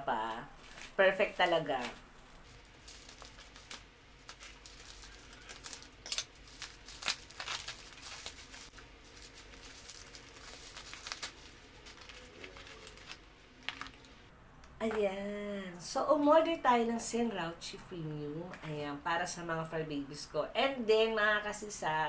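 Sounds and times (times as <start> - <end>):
bubble wrap crinkling and tearing: 0.6 - 14.3.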